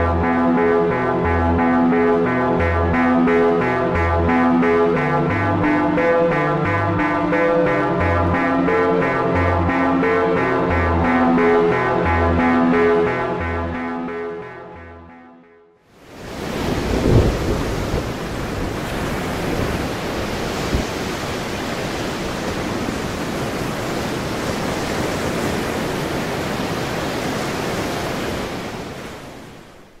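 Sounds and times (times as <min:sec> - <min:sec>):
waves breaking: 0:16.1 - 0:30.0.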